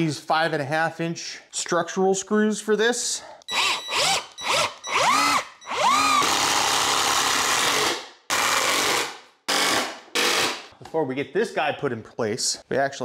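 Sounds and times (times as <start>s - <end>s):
cordless drill driving screw into wood: 3.5s - 10.7s.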